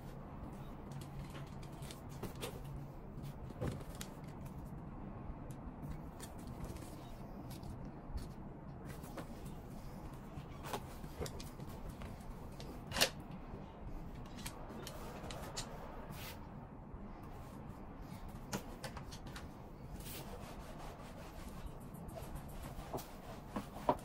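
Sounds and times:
denim being rubbed: 0:19.9 - 0:24.0.

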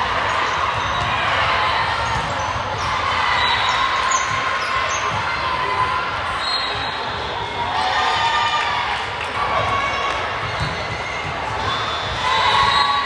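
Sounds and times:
many overlapping voices: 0:00.0 - 0:13.0
volleyballs bouncing on floor: 0:02.0 - 0:02.8, 0:09.5 - 0:11.6.

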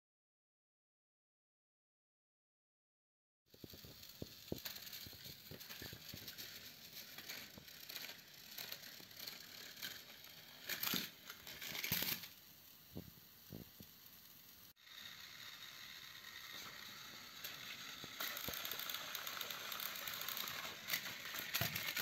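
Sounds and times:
toy trains clicking and rattling: 0:03.5 - 0:22.0
toy train clattering bursts: 0:03.6 - 0:12.9, 0:13.8 - 0:22.0.

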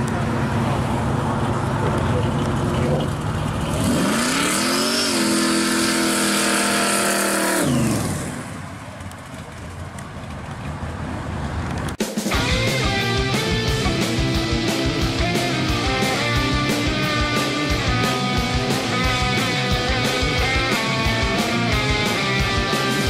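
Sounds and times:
hot rod engine revving: 0:00.0 - 0:08.8, 0:12.3 - 0:23.0
rock music with electric guitar: 0:12.0 - 0:23.0.

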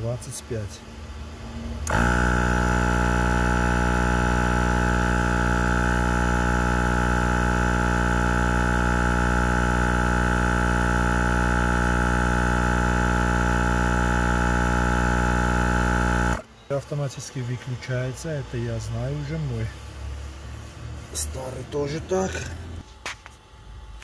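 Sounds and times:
tyre compressor humming: 0:01.8 - 0:22.9.

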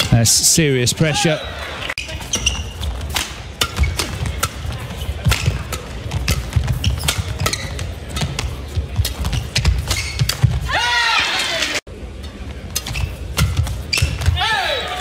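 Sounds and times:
shoe squeaks: 0:01.4 - 0:03.1, 0:03.7 - 0:10.7, 0:12.8 - 0:15.0
badminton rackets and shuttle knocks: 0:02.0 - 0:10.7, 0:12.5 - 0:14.4.

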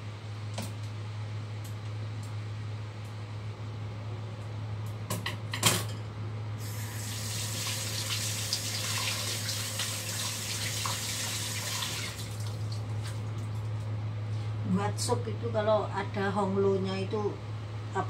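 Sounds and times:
steady low hum: 0:00.0 - 0:08.5, 0:09.2 - 0:18.0
tap water running into sink: 0:06.7 - 0:12.8.

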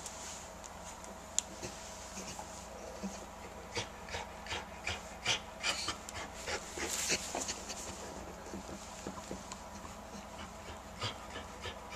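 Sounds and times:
dog panting: 0:02.2 - 0:11.9.

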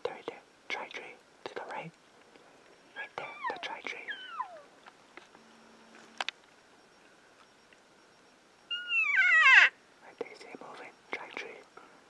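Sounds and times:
elk mewing call: 0:03.2 - 0:04.7, 0:08.7 - 0:09.8
faint click: 0:04.8 - 0:06.6.

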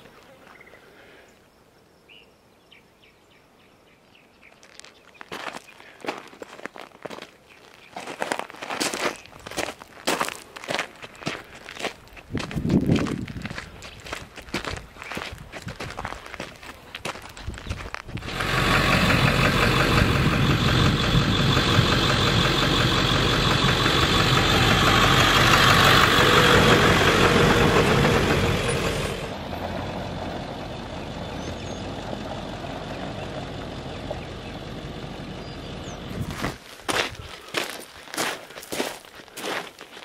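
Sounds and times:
footsteps: 0:04.6 - 0:18.4, 0:36.2 - 0:40.0
car driving past: 0:18.2 - 0:36.1.

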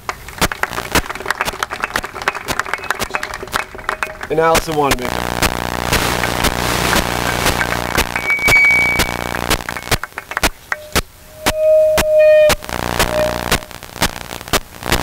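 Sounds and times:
audience applause: 0:00.0 - 0:10.9
short steady tones: 0:07.8 - 0:10.0, 0:10.7 - 0:13.8.

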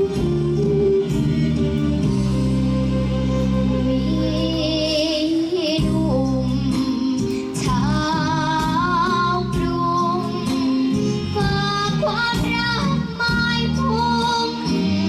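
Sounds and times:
instrumental backing music: 0:00.0 - 0:15.0
girl singing into a microphone: 0:03.6 - 0:15.0.

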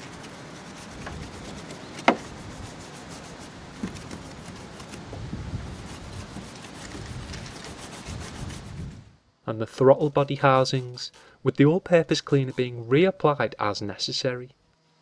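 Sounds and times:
brush scrubbing wet plastic: 0:00.0 - 0:09.0, 0:09.9 - 0:12.8.

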